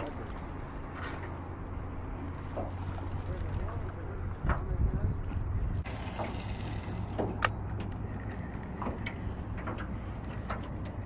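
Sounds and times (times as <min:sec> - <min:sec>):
open water rumble: 0:00.0 - 0:11.0
water lapping against boat: 0:05.8 - 0:11.0.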